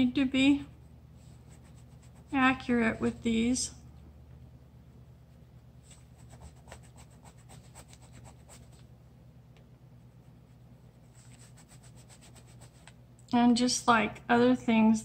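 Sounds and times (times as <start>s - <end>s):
oil pastel scratching on paper: 0.8s - 3.3s, 5.3s - 8.9s, 10.0s - 13.0s.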